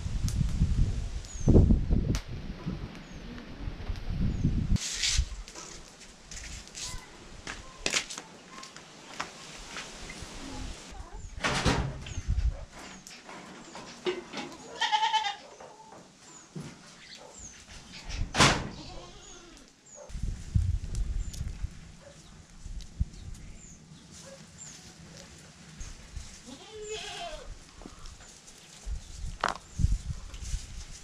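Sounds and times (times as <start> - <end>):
goat bleating: 14.6 - 15.4, 26.4 - 27.5.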